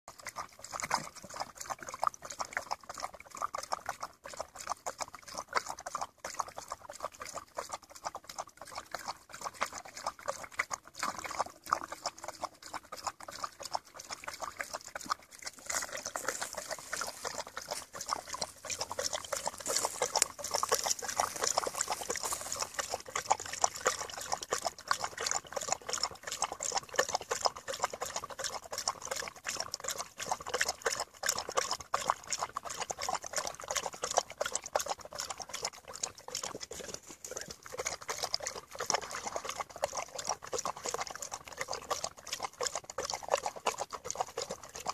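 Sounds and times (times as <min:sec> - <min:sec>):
dog lapping water: 0:00.1 - 0:44.9.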